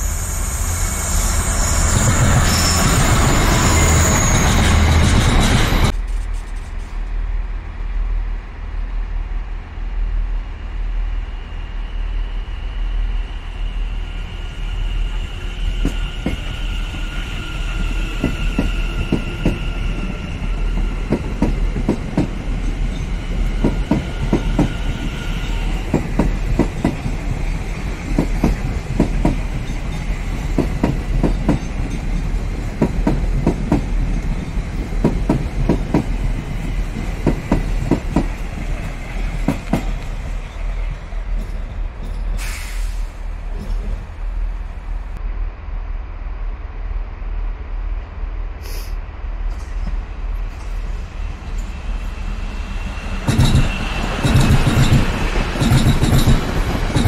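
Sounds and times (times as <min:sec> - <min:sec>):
high electric train whine: 0:00.0 - 0:57.0
wheels clacking over rail joints: 0:53.2 - 0:57.0.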